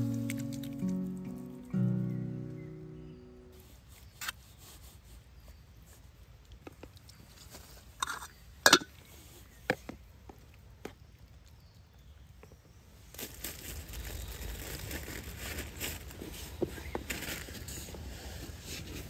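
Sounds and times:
metal spoon scraping a pot: 8.0 - 8.9
soft rustling: 13.0 - 19.0.

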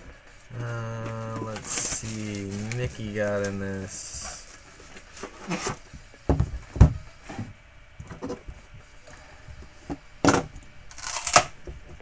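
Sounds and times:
boxes knocking on a table: 5.5 - 7.5.

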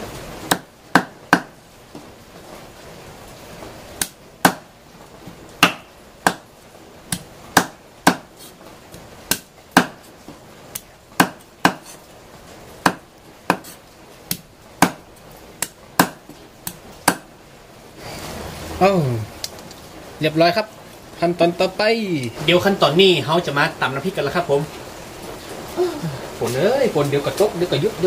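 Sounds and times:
cleaver chopping on wooden block: 0.5 - 1.6, 4.0 - 4.7, 5.6 - 6.5, 7.1 - 8.6, 9.3 - 10.1, 10.8 - 12.0, 12.8 - 15.0, 15.6 - 17.3.

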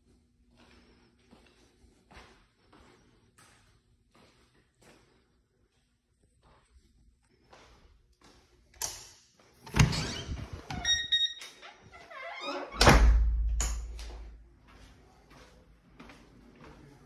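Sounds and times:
door shutting heavy thud: 12.8 - 13.9.

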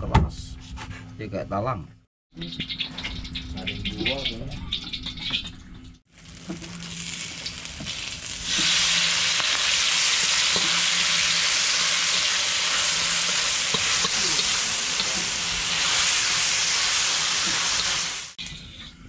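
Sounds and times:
food sizzling in frying pan: 6.1 - 18.4.

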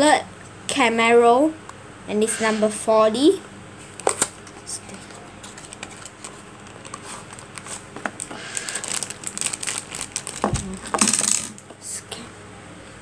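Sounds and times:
plastic bag crinkling: 3.9 - 11.7
cardboard box clicks and rustles: 4.0 - 11.6.

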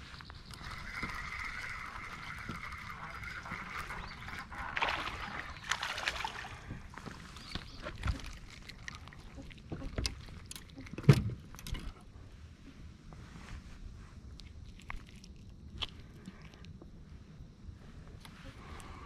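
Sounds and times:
fish splashing: 0.6 - 10.9
knocks and thumps on a boat: 11.0 - 11.5.

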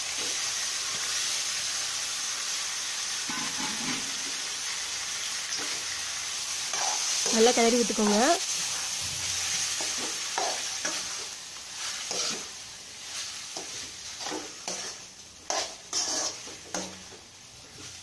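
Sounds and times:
chicken sizzling in oil: 0.0 - 18.0
metal spoon scraping a pot: 3.3 - 4.2, 14.2 - 16.9.

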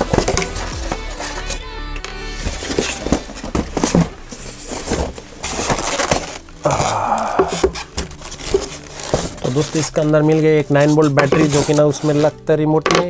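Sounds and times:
styrofoam and plastic handling: 0.0 - 1.6, 2.4 - 13.0
scraping: 2.4 - 12.4.

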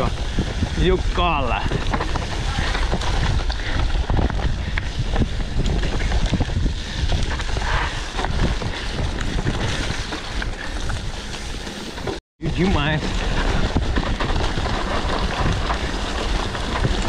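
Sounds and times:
wind buffeting microphone: 0.0 - 11.6
bike rattling over bumps: 0.0 - 17.0
tyres rumbling on dirt: 0.0 - 17.0.

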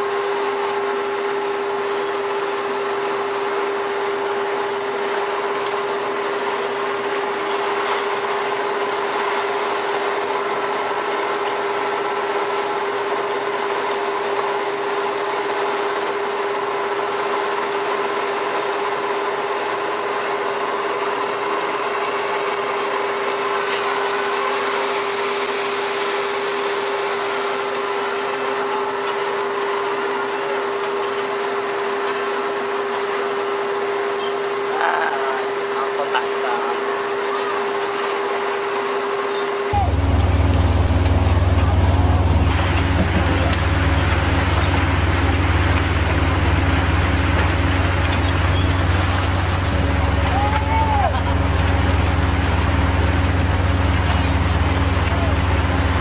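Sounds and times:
machinery drone: 20.5 - 56.0.

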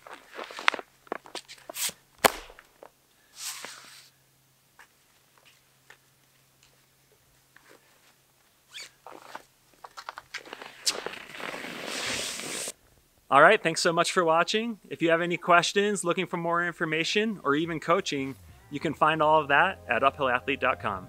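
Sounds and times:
short scraping hisses: 1.5 - 2.0, 3.2 - 4.2, 10.7 - 12.8
climbing skin crinkling and peeling: 7.5 - 11.9.

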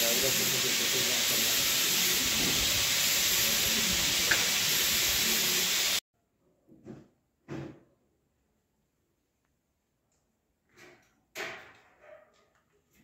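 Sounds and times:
meat sizzling on a grill: 0.0 - 6.0.

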